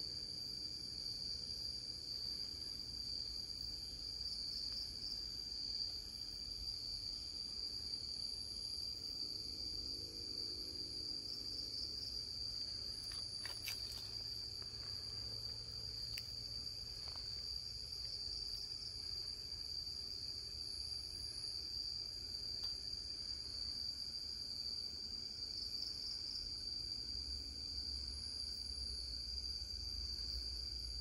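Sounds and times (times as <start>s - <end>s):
night insects shrill trill: 0.0s - 31.0s.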